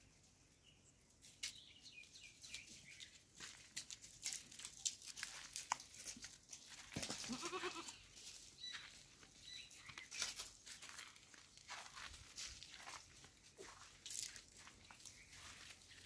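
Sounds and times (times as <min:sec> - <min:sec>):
crackling and rustling on dry ground: 0:01.1 - 0:16.0
goat bleating: 0:07.2 - 0:08.0.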